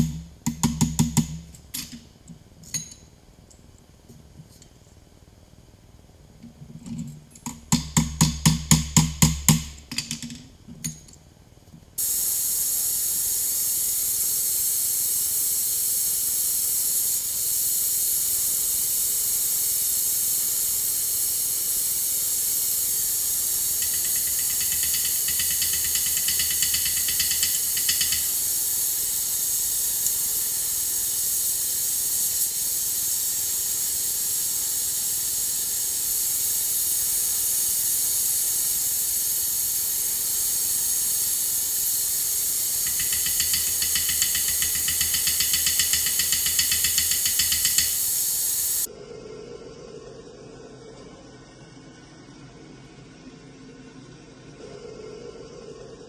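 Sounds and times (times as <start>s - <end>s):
gas torch flame hissing: 12.0s - 48.9s.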